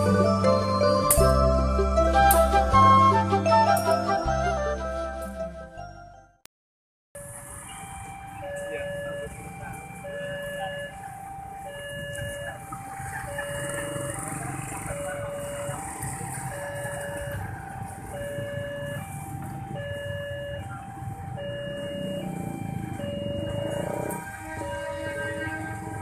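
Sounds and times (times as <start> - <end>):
level-crossing two-tone alarm: 7.2 - 25.4
motorcycle engines running: 7.3 - 26.0.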